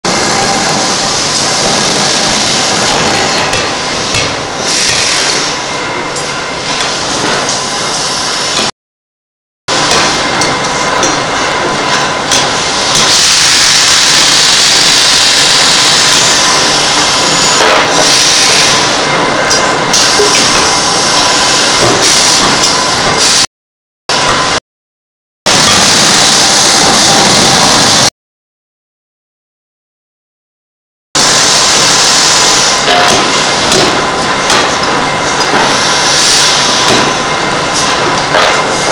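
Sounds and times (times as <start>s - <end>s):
forging hammer blows: 9.7s - 14.8s, 32.4s - 38.9s.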